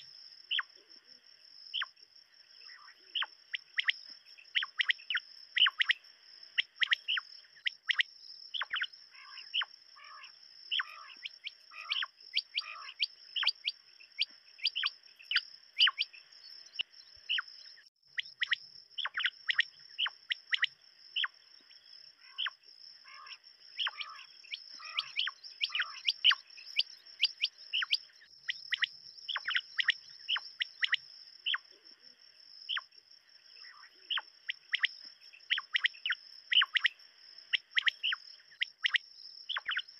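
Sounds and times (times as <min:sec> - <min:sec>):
quail calling: 0:04.6 - 0:06.0, 0:06.6 - 0:16.1, 0:22.2 - 0:28.0, 0:28.6 - 0:31.6, 0:35.5 - 0:36.9, 0:37.5 - 0:39.9.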